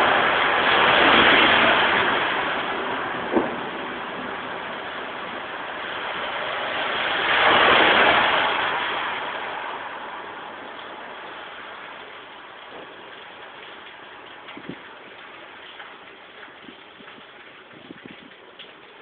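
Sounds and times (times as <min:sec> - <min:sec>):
rain noise: 0:00.0 - 0:19.0
tyres hissing on wet road: 0:00.0 - 0:19.0.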